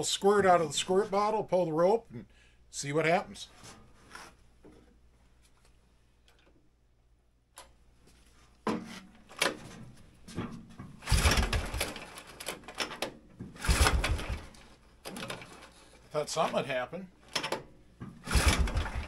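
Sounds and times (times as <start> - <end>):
engine turning over on recoil starter: 11.0 - 12.2, 13.6 - 14.6, 18.2 - 19.0.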